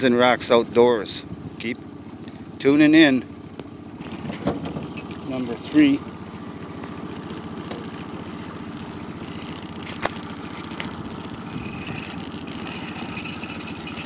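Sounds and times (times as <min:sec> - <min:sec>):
outboard motor running: 0:00.0 - 0:14.0.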